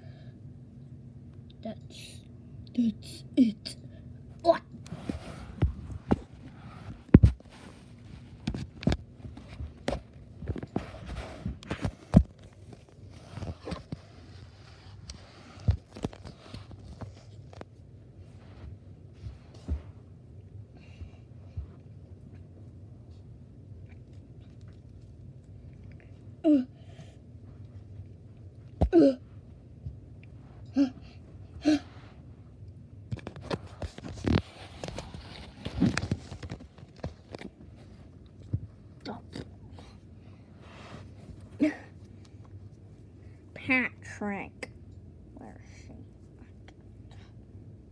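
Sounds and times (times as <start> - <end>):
soft thumps and rustling: 4.9 - 20.1.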